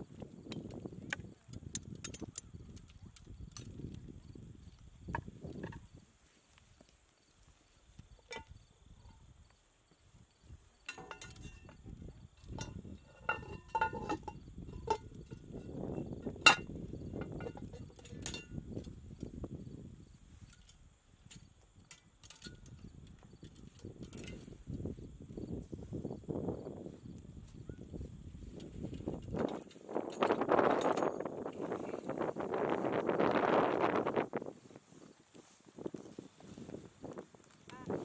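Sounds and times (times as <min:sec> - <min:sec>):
hanging chain rattling: 0:10.9 - 0:11.8, 0:28.6 - 0:33.1
metal lid clinks and clanks: 0:10.9 - 0:11.8, 0:12.4 - 0:18.6, 0:29.3 - 0:31.3.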